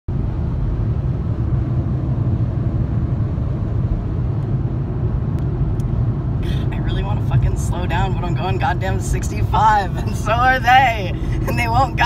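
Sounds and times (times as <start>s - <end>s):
car cabin road and engine rumble: 0.1s - 12.0s.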